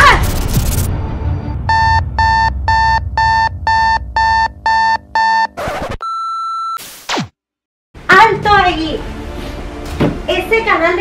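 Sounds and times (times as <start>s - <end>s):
steady test tone: 1.4s - 5.6s
electronic alarm beeps: 1.6s - 6.8s.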